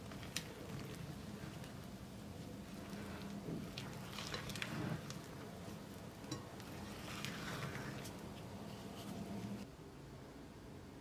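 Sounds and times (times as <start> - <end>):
low steady hum: 0.0 - 11.0
spatula scraping batter in bowl: 2.5 - 9.6.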